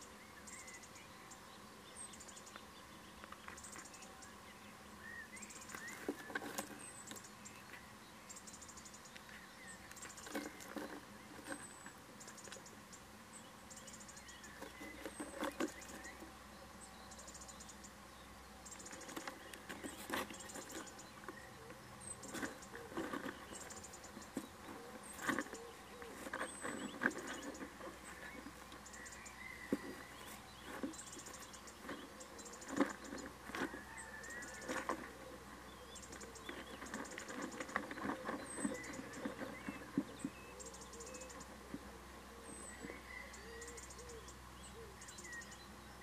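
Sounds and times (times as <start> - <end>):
owl scratching and knocking in nest box: 5.5 - 7.3, 9.8 - 12.6, 14.4 - 16.3, 18.8 - 41.9.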